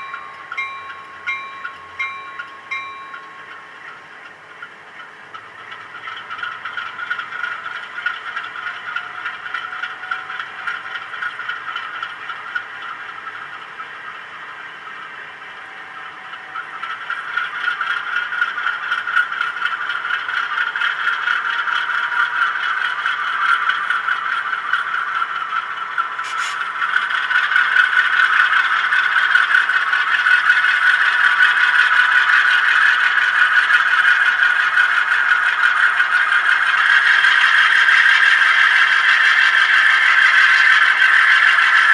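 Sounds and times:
model train engine sound from speaker: 0.0 - 41.9
wheels rattling on track: 0.0 - 41.9.

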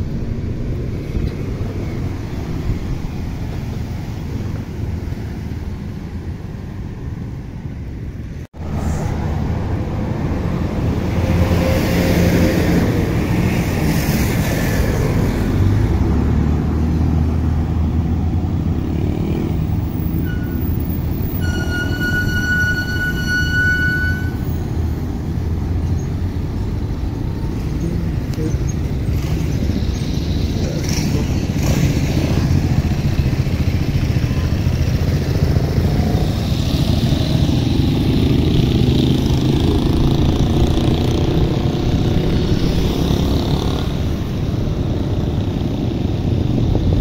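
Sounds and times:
cars and motorbikes passing: 0.0 - 47.0
high-pitched squeal: 20.0 - 24.8
wind on microphone: 27.8 - 47.0.

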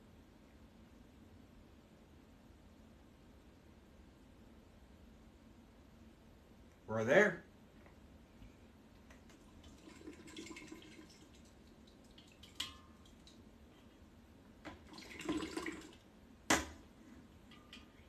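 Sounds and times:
liquid dripping and gurgling: 9.2 - 13.6, 14.7 - 16.1.

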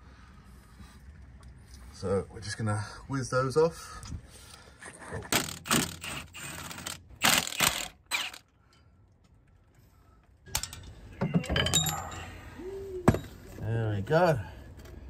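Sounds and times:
impact wrench bursts: 5.4 - 8.4.

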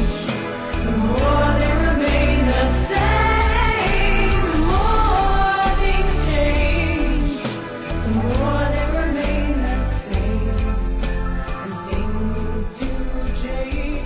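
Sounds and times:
regular beat: 0.0 - 9.4
gliding melody: 0.0 - 13.6
steady bass: 0.0 - 14.0.

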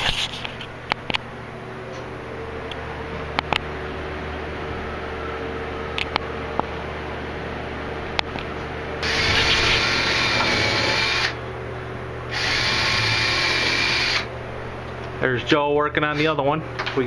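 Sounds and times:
power drill drilling into wood: 9.0 - 11.4, 12.3 - 14.3.

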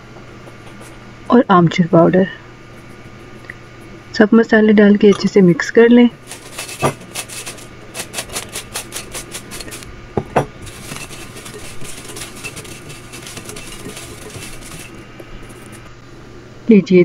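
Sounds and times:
chips clattering in glass bowl: 6.2 - 9.9, 10.6 - 15.8
chips rustling when stirred: 6.2 - 9.9, 10.6 - 15.9.

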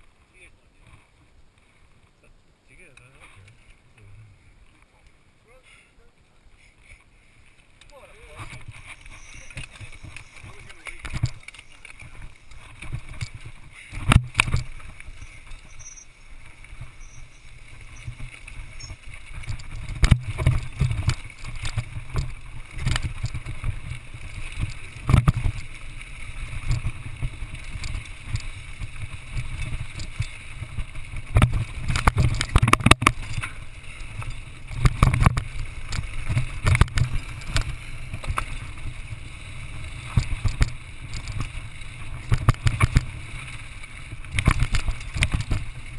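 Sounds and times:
bike tyres rumbling on dirt: 7.9 - 45.9
bike frame knocks and rattles: 8.4 - 15.9, 17.9 - 25.7, 26.5 - 38.6.

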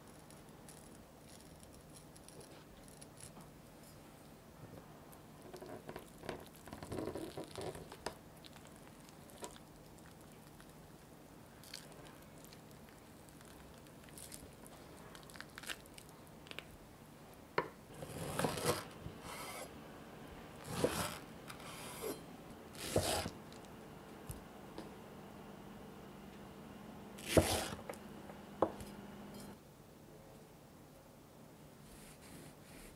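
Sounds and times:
knife slicing onto cutting board: 20.7 - 22.2, 22.8 - 23.4, 27.2 - 27.8.

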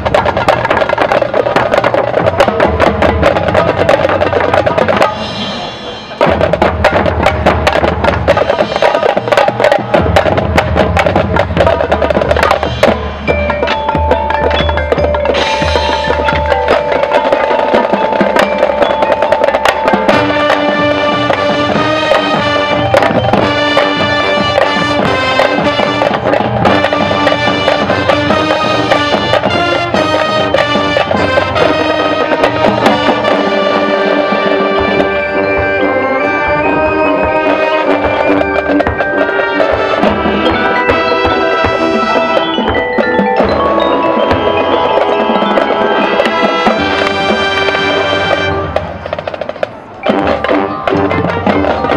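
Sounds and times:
marching drums: 0.0 - 51.9
brass sustained chords: 26.8 - 38.5.

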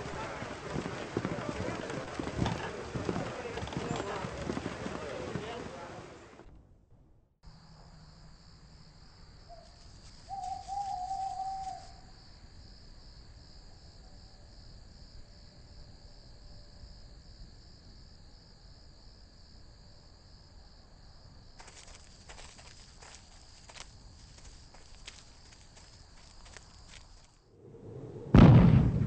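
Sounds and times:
crickets chirping: 0.0 - 6.3, 7.4 - 28.8
crackling footsteps: 0.0 - 6.4, 9.5 - 12.0, 21.6 - 27.4
held whistle-like call: 10.3 - 12.0.

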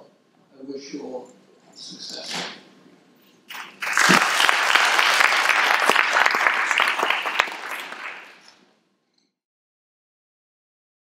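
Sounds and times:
audience applauding: 3.5 - 8.6.

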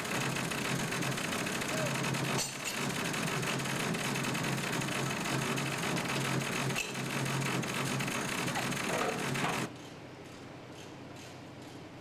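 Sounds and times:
lorry diesel engine running: 0.0 - 9.7.

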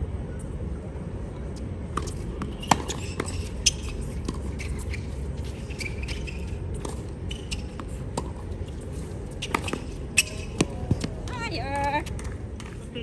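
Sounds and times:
steady low hum: 0.0 - 13.0
rackets hitting tennis ball: 2.0 - 4.8, 9.4 - 12.9
shoe squeaks on court: 2.0 - 8.1, 9.3 - 11.0.

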